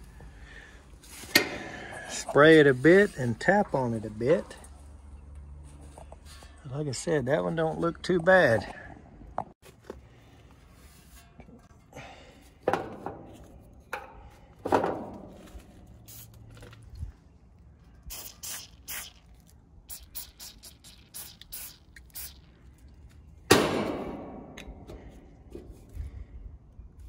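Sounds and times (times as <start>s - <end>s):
aerosol can spraying in bursts: 16.0s - 16.4s, 18.1s - 22.6s.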